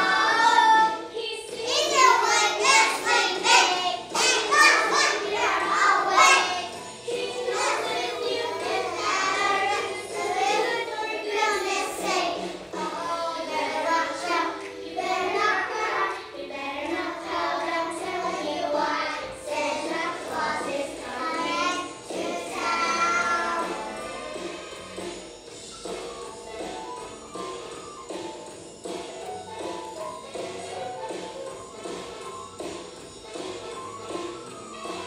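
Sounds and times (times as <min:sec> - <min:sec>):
children singing: 0:00.0 - 0:25.2.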